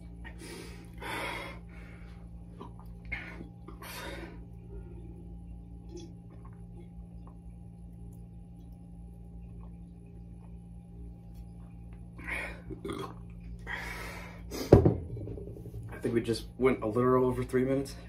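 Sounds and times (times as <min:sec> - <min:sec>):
steady low hum: 0:00.0 - 0:18.0
person breathing heavily: 0:00.2 - 0:02.3, 0:13.6 - 0:14.7
person gulping water: 0:02.5 - 0:03.8, 0:05.8 - 0:07.5, 0:12.2 - 0:13.6.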